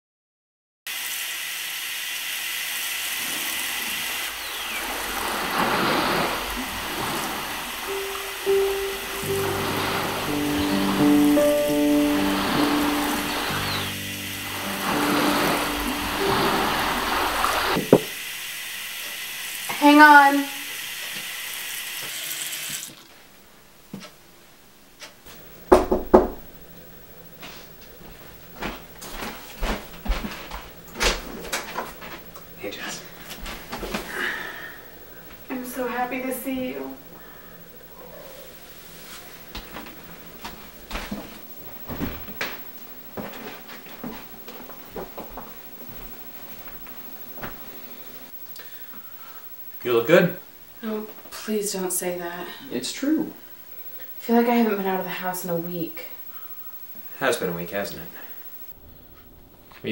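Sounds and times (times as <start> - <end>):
running water rushing: 0.9 - 18.2
held musical note: 7.8 - 18.0
knocking on a door: 17.8 - 18.1, 25.7 - 26.4.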